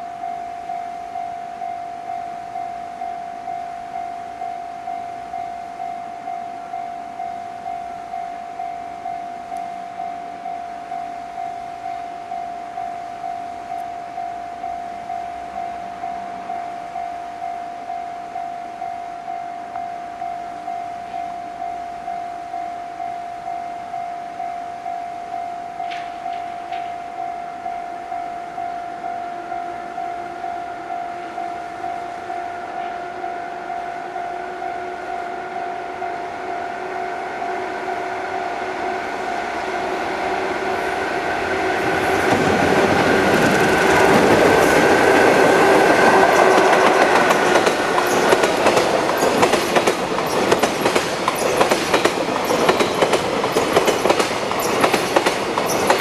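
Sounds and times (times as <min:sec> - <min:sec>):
pulsing high tone: 0:00.0 - 0:53.0
freight train passing: 0:00.0 - 0:56.0
wheels clacking over rail joints: 0:41.1 - 0:56.0.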